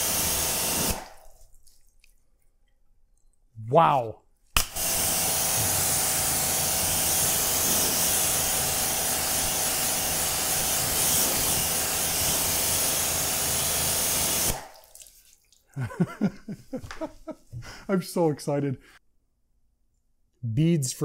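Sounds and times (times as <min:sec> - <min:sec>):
pressure washer spray hissing: 0:00.0 - 0:01.1, 0:04.7 - 0:14.6.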